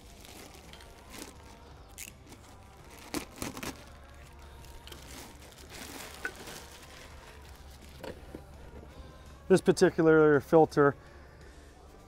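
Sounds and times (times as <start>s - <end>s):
plastic bag crinkling: 0.0s - 8.1s.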